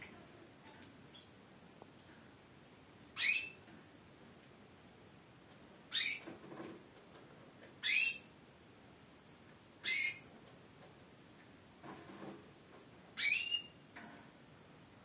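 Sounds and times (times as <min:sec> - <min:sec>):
canary call notes: 0:03.2 - 0:03.6, 0:09.8 - 0:10.3, 0:13.2 - 0:13.8.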